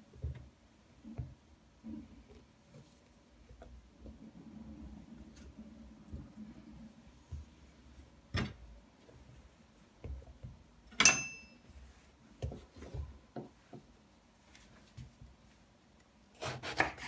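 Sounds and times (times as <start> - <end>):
knife clinking: 11.0 - 11.6.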